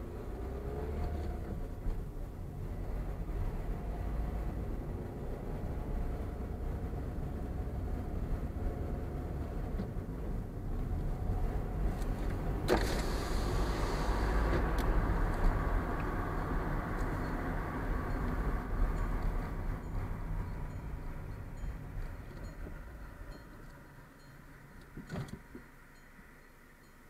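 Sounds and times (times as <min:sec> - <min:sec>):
car engine and tyre rumble: 0:00.0 - 0:27.0
loud hiss: 0:12.8 - 0:14.5.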